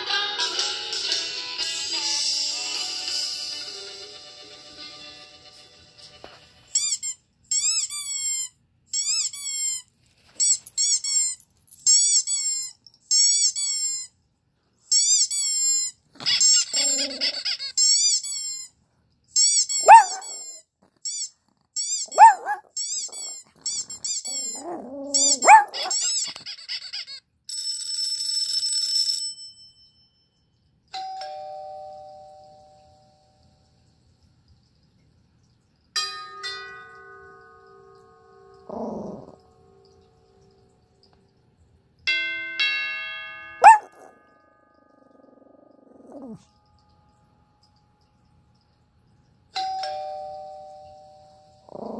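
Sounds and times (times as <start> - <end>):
dog barking sharply: 19.8 - 20.4, 22.1 - 23.3, 24.6 - 26.1, 43.6 - 44.1
doorbell-like chime: 27.5 - 33.6, 36.0 - 38.6, 42.1 - 45.4, 49.6 - 51.7.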